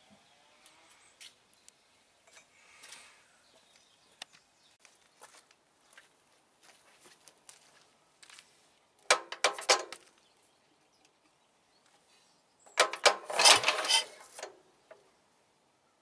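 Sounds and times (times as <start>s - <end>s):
mower engine cranking clatter: 9.1s - 10.0s, 12.7s - 14.6s.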